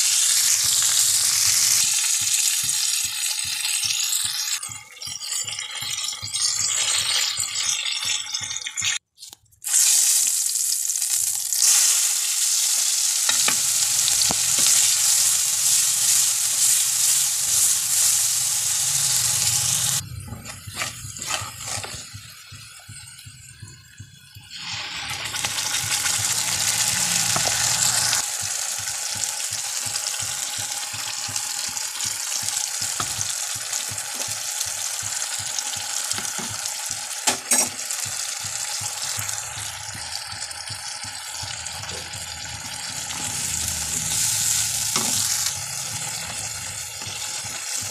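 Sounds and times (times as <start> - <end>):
oil sizzling in a wok: 0.0 - 9.0, 9.6 - 47.9
wooden spatula stirring vegetables: 13.3 - 23.4, 37.9 - 47.9.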